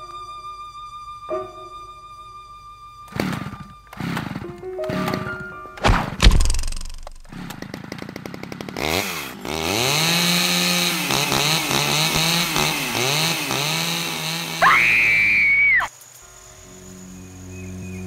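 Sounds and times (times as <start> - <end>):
chainsaw engine revving: 3.1 - 5.3, 6.0 - 15.9.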